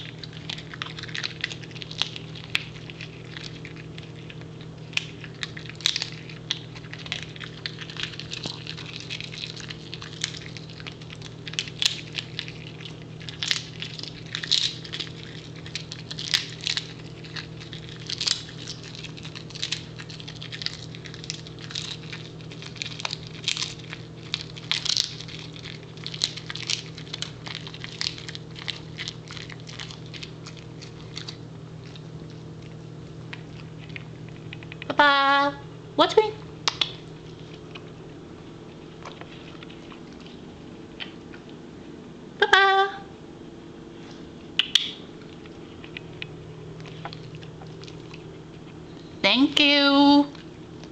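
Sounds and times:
dog crunching a chew: 0:00.0 - 0:34.9, 0:36.4 - 0:41.6, 0:44.0 - 0:49.2, 0:50.3 - 0:50.9.

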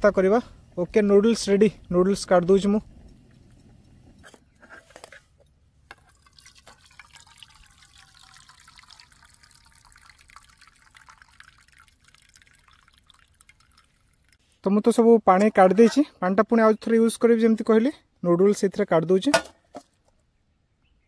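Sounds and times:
water trickling into metal pan: 0:06.0 - 0:14.4.

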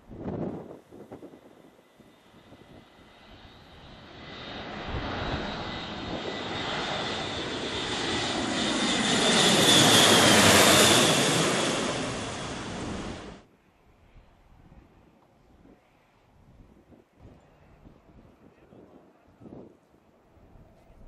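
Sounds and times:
turboprop aircraft passing overhead: 0:00.4 - 0:16.3.

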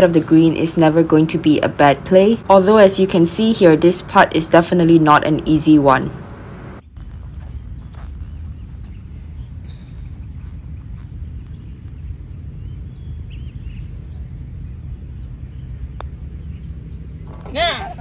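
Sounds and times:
wind rumble on microphone: 0:06.0 - 0:18.0
high bird chirps: 0:06.2 - 0:17.5.

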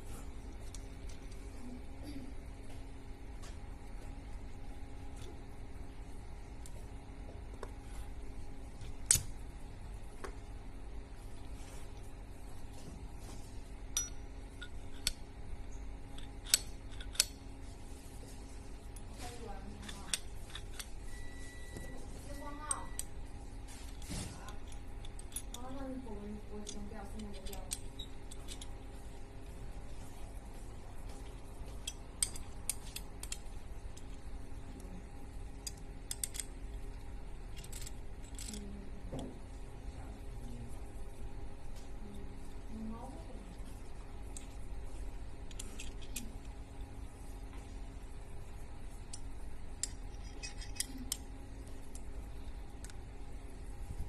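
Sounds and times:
metal parts clicking and clinking: 0:08.8 - 0:09.4, 0:13.9 - 0:15.2, 0:16.1 - 0:17.5, 0:18.9 - 0:21.2, 0:23.8 - 0:29.2, 0:31.3 - 0:34.2, 0:35.5 - 0:38.8, 0:45.4 - 0:46.6, 0:49.0 - 0:53.0
hex key clicking in metal jig: 0:49.8 - 0:51.2.

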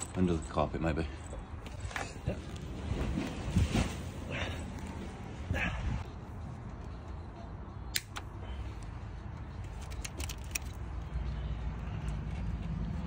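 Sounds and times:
metallic clicks of hand tools: 0:09.6 - 0:10.8.

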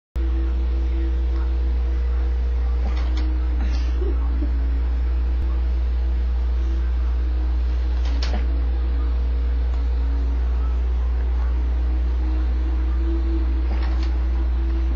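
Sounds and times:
low electrical hum: 0:00.2 - 0:14.9
faint high steady tone: 0:08.5 - 0:14.9.

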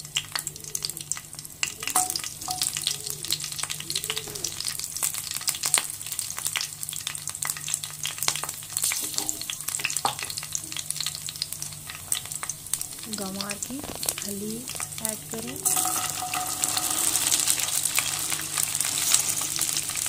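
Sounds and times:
chillies sizzling in hot oil: 0:00.0 - 0:20.0.

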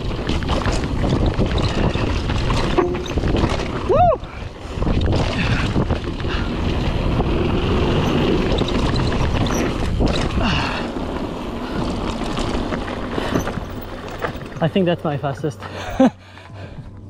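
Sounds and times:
wind on microphone: 0:00.0 - 0:10.8
bike clicks and rattles: 0:00.0 - 0:16.2
bike tyres rumbling on dirt: 0:00.0 - 0:16.8.

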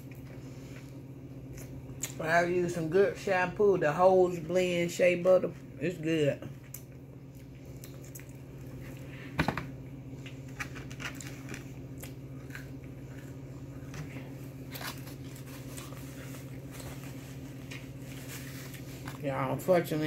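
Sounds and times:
steady low hum: 0:00.0 - 0:20.0
person chewing crunchy food: 0:06.6 - 0:09.1, 0:10.1 - 0:19.2.

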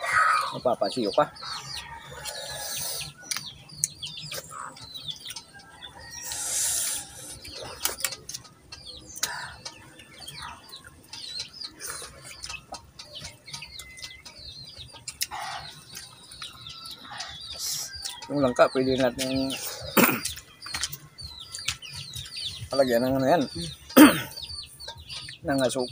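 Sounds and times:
chickens clucking: 0:00.0 - 0:25.9
small birds chirping: 0:00.0 - 0:25.9
chewing and mouth sounds: 0:15.0 - 0:18.2.

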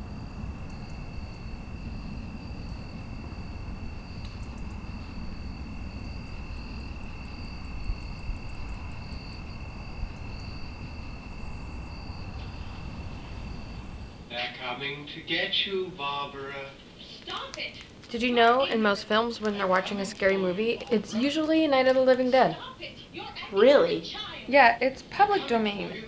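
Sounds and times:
insects trilling: 0:00.0 - 0:26.0
low constant rumble: 0:00.0 - 0:26.0
rapid high ticks: 0:04.2 - 0:05.1, 0:06.2 - 0:09.5.

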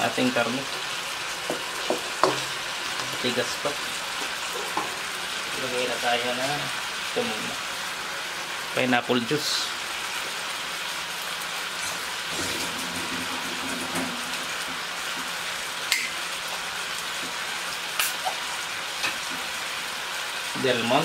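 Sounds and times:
chicken sizzling in a wok: 0:00.0 - 0:21.0.

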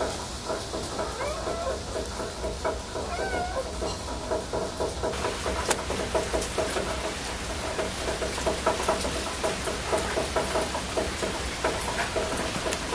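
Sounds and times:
kittens mewing: 0:01.0 - 0:01.9, 0:03.0 - 0:03.8.

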